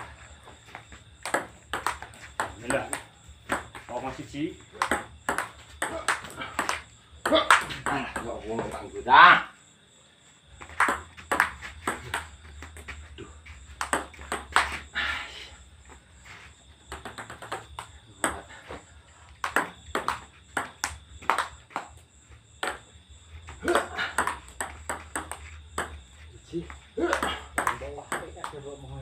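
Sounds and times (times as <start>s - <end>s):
table tennis ball ticking: 1.2s - 3.9s, 4.7s - 8.8s, 13.8s - 14.7s, 16.9s - 18.5s, 19.4s - 22.0s, 23.8s - 26.1s, 27.1s - 28.7s.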